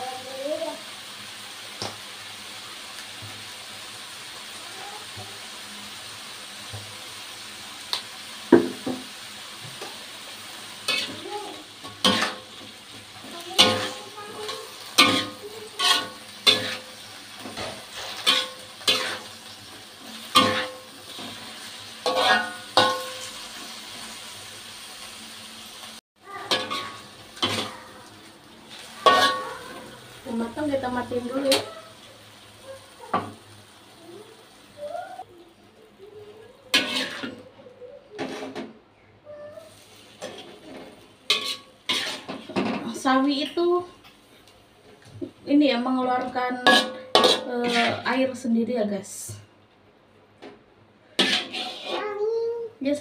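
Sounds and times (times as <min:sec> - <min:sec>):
food sizzling: 0:00.0 - 0:38.5, 0:39.3 - 0:49.5, 0:51.0 - 0:53.0
spatula scraping and clanking on wok: 0:10.8 - 0:24.0, 0:26.2 - 0:28.0, 0:28.7 - 0:30.4, 0:36.7 - 0:37.5, 0:38.2 - 0:38.7, 0:39.7 - 0:44.2, 0:46.1 - 0:48.4, 0:51.1 - 0:52.2.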